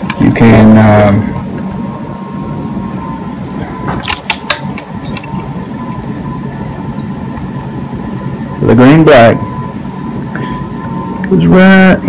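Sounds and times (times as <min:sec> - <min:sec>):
low mechanical hum: 0:00.0 - 0:12.0
wires clicking and rustling: 0:03.4 - 0:06.0.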